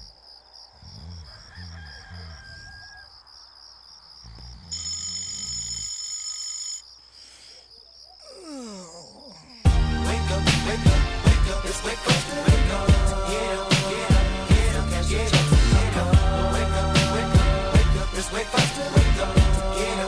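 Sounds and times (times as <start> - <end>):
crickets chirping: 0.0 - 9.8
rooster crowing: 1.0 - 3.5
bell ringing: 4.7 - 6.8
hip hop beat: 9.7 - 20.0.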